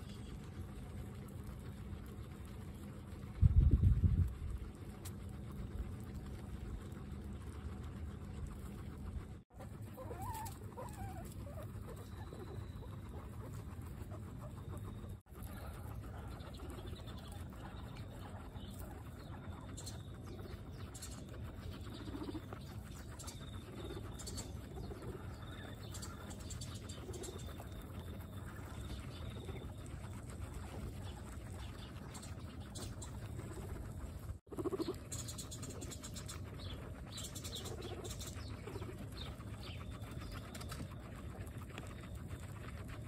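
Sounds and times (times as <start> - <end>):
guinea pigs crunching grass: 0.0 - 43.0
low background hum: 0.0 - 43.0
wavering chirps: 9.9 - 33.8.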